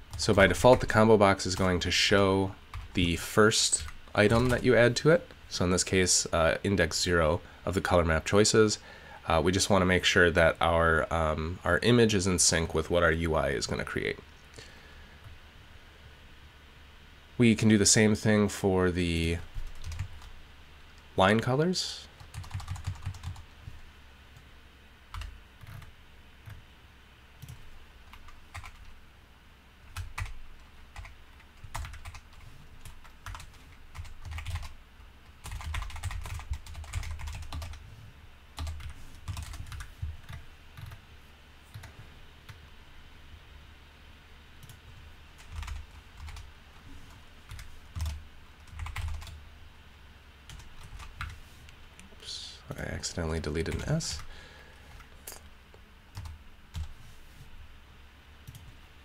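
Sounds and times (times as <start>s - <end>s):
computer keyboard typing: 2.7s - 3.1s, 3.8s - 4.7s, 19.6s - 20.3s, 22.2s - 23.4s, 25.1s - 26.6s, 27.4s - 28.9s, 29.9s - 37.8s, 38.6s - 41.0s, 41.7s - 42.6s, 44.6s - 46.5s, 47.5s - 49.4s, 50.5s - 51.4s, 56.1s - 57.0s, 58.4s - 58.8s.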